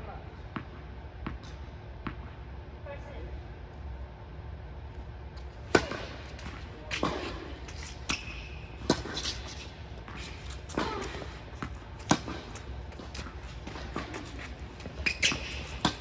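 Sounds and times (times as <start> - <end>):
rackets striking tennis ball: 5.4 - 16.0
tennis ball bouncing: 5.5 - 16.0.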